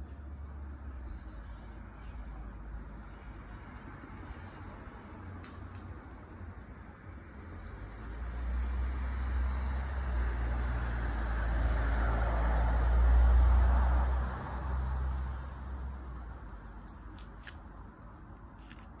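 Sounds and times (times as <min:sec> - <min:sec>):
vehicle passing by: 0:07.4 - 0:16.5.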